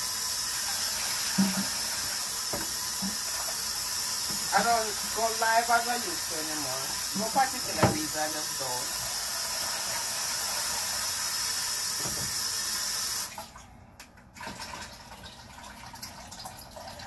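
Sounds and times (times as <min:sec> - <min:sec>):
tap running into sink: 0:01.2 - 0:06.3, 0:06.9 - 0:08.7, 0:11.9 - 0:12.6.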